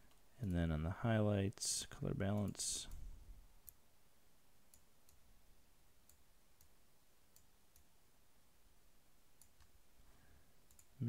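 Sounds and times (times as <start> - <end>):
computer mouse clicks: 9.4 - 9.7, 10.7 - 11.0.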